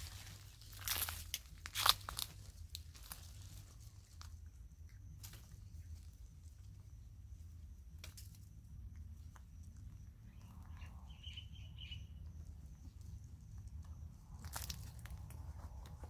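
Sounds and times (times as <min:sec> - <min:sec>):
crackling rustles: 0:00.0 - 0:06.9, 0:12.5 - 0:16.0
low wind rumble: 0:09.6 - 0:16.0
faint high chirps: 0:09.7 - 0:13.4.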